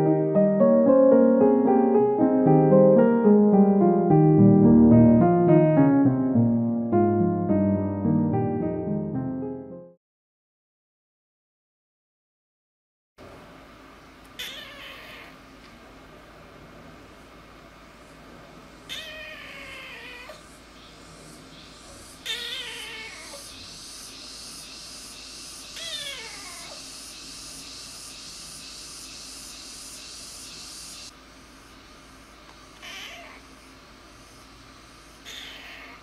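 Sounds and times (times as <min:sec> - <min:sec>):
steady hiss: 0:13.2 - 0:36.0
kitten meowing: 0:14.4 - 0:15.4, 0:18.9 - 0:20.4, 0:22.2 - 0:23.4, 0:25.8 - 0:26.8, 0:32.8 - 0:33.4, 0:35.2 - 0:36.0.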